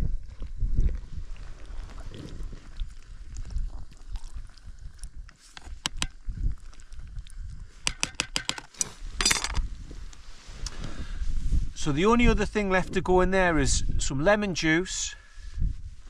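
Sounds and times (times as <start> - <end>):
metal utensil tapping metal pot: 7.9 - 9.5.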